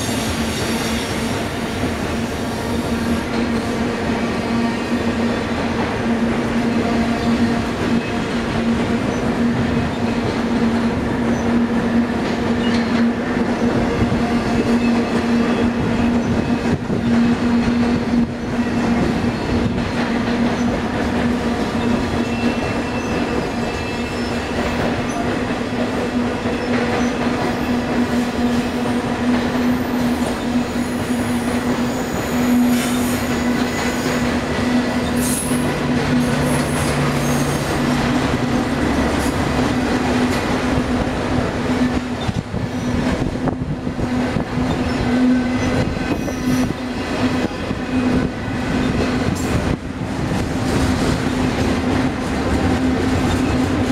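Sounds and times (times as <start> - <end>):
train wheels rumbling on rails: 0.0 - 53.9.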